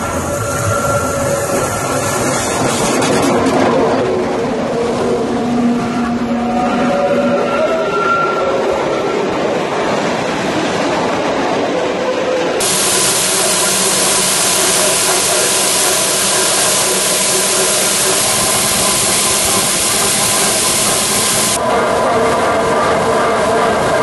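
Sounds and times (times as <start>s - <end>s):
faint traction motor hum: 12.6s - 21.6s
loud steady hiss in locomotive: 12.6s - 21.6s.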